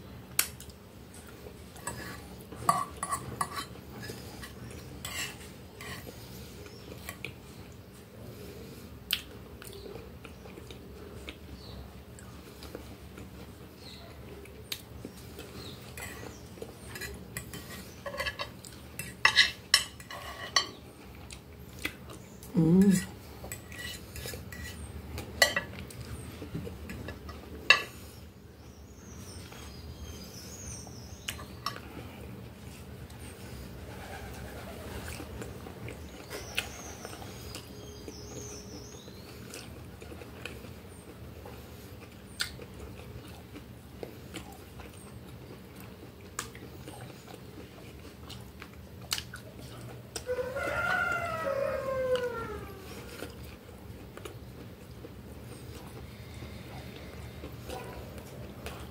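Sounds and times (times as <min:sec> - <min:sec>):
chewing: 0:09.1 - 0:28.0, 0:35.1 - 0:38.4, 0:39.0 - 0:50.4, 0:52.1 - 0:58.9.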